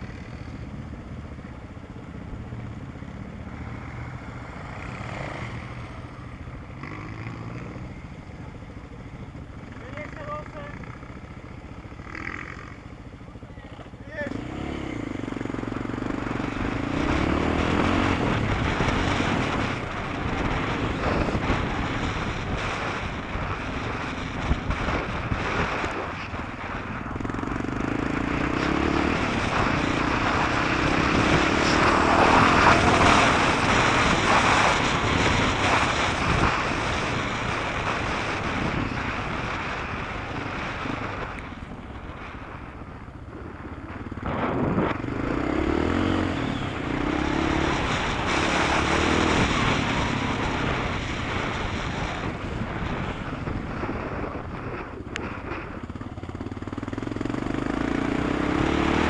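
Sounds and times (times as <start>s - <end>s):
vehicle engine revving: 14.2s - 26.0s, 27.2s - 41.5s, 43.9s - 54.4s, 56.3s - 59.0s.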